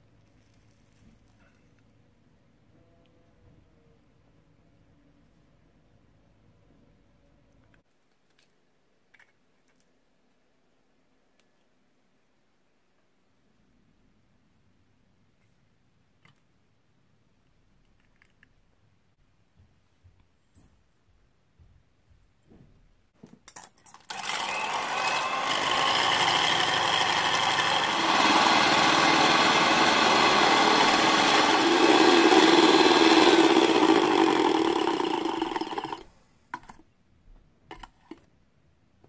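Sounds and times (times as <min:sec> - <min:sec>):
electric hand mixer whipping: 0:24.1 - 0:36.0.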